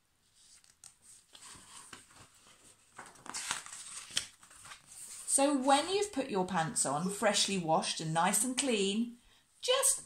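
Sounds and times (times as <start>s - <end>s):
paper page rustling: 0.3s - 6.1s.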